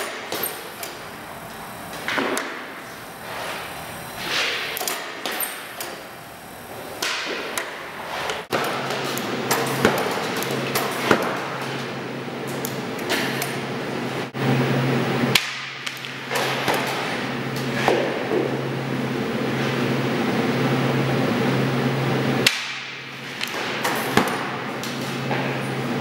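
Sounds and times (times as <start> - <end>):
steady low hum: 0.0 - 26.0
skate blades scraping: 1.9 - 5.7, 6.7 - 12.0, 16.0 - 18.5
pucks knocking: 17.8 - 18.5.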